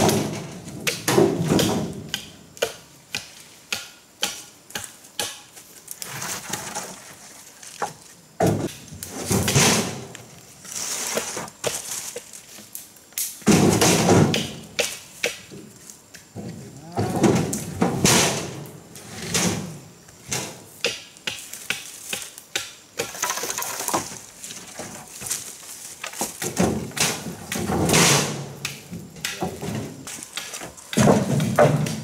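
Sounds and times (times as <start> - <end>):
firewood knocking and thudding: 0.0 - 5.5, 7.8 - 10.3, 13.4 - 18.6, 19.2 - 32.0
rustling: 8.8 - 12.7.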